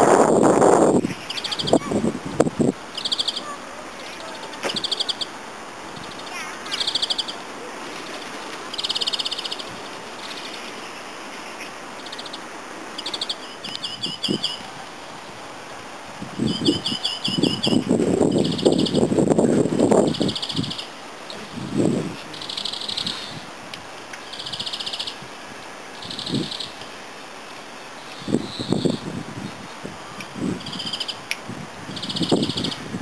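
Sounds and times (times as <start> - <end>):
finch singing high trills: 3.0 - 3.6, 4.2 - 5.3, 13.0 - 14.7, 16.4 - 19.1
rustling noise: 7.8 - 8.7.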